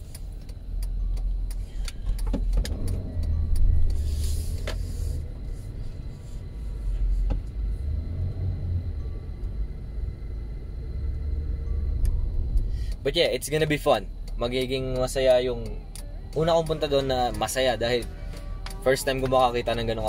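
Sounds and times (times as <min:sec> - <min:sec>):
scattered clicks: 0:00.0 - 0:04.9, 0:12.0 - 0:20.0
van engine and road rumble: 0:00.0 - 0:20.0.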